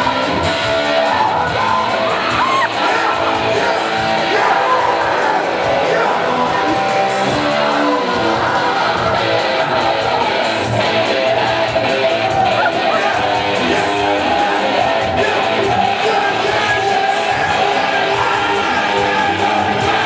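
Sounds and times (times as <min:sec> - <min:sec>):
guitar strummed: 0:00.0 - 0:20.0
person singing into a microphone: 0:00.0 - 0:20.0.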